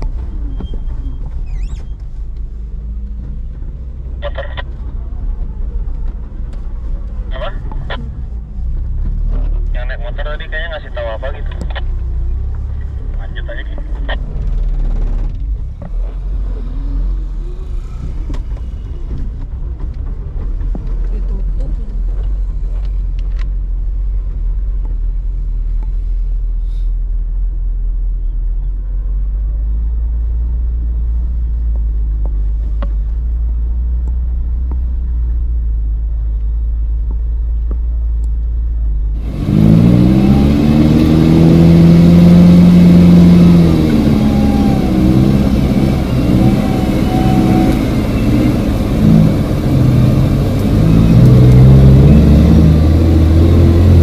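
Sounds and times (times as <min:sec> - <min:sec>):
vehicle engine droning: 0:00.0 - 0:54.0
engine revving: 0:39.2 - 0:54.0.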